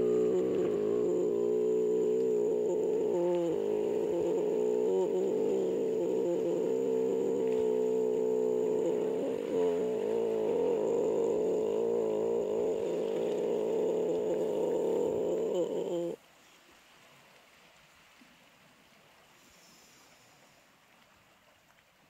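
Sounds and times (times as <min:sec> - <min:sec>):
sustained layered tones: 0:00.0 - 0:16.2
faint background hiss: 0:00.0 - 0:22.0.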